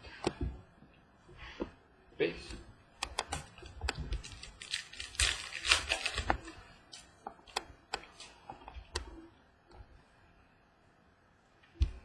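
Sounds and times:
cards rustling: 3.9s - 7.1s.

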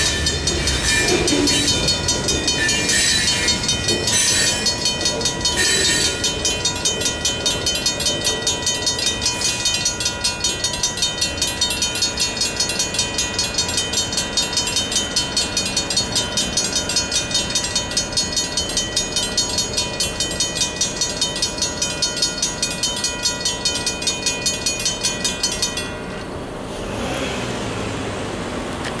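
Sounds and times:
crossing bells ringing rapidly: 0.0s - 27.2s
car passing on road: 26.6s - 29.0s.

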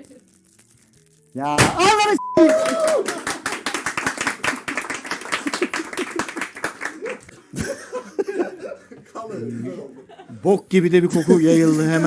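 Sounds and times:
hand clapping: 2.4s - 7.4s
men laughing: 6.9s - 12.0s.

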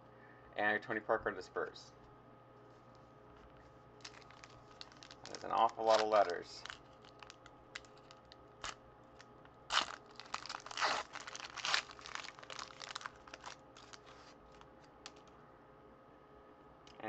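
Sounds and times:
foil wrapper crinkling and tearing: 4.0s - 15.3s.

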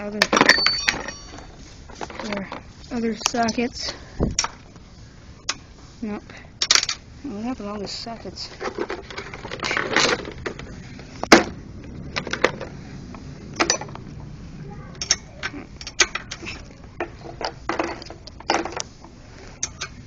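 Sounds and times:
metal tools clinking and clattering: 0.2s - 2.6s, 8.5s - 10.7s, 13.5s - 14.0s, 15.0s - 18.8s, 19.6s - 20.0s.

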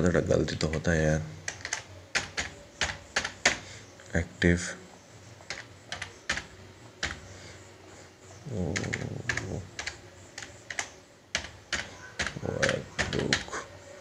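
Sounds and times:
computer keyboard keystrokes: 1.4s - 3.6s, 5.5s - 7.3s, 8.7s - 13.5s.

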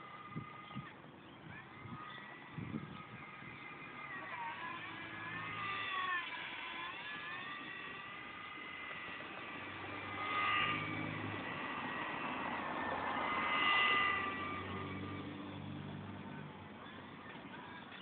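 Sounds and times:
model plane motor whining: 0.0s - 18.0s.

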